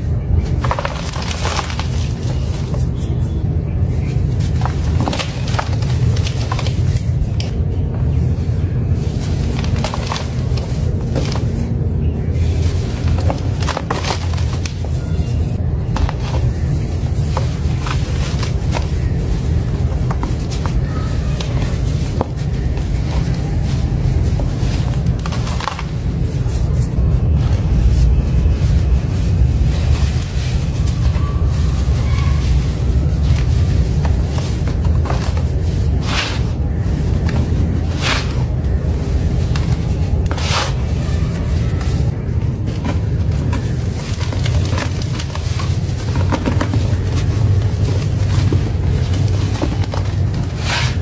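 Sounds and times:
deep rumble: 0.0s - 51.0s
hands crumbling packed sand: 0.3s - 3.2s.

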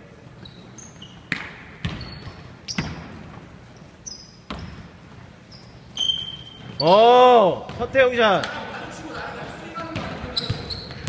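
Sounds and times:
sneaker squeaks: 0.2s - 8.5s, 9.8s - 11.0s
basketball bouncing on wooden floor: 1.3s - 3.4s, 4.5s - 4.9s, 7.7s - 8.0s.

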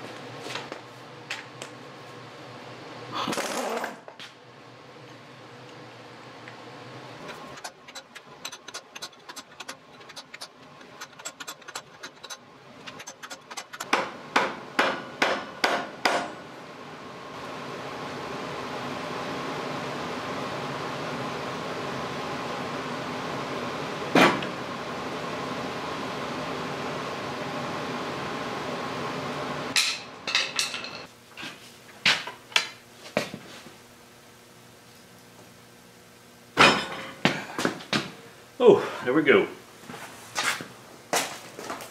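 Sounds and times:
mechanical hum: 0.0s - 41.9s
hammer striking steel: 7.6s - 16.4s.

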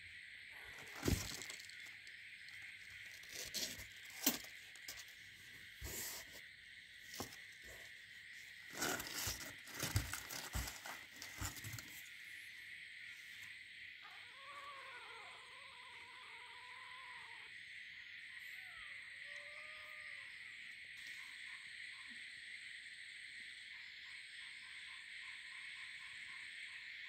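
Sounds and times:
knocks and scrapes in cardboard box: 8.7s - 12.0s.

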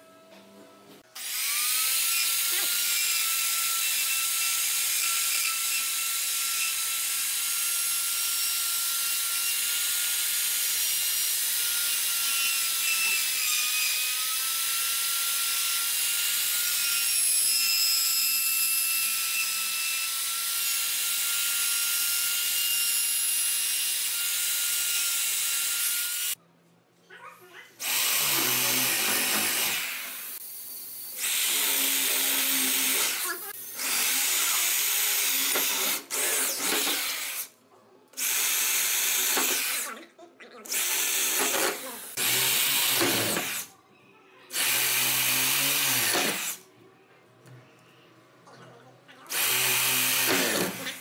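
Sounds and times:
router whining while cutting wood: 27.8s - 30.4s, 49.3s - 51.0s.

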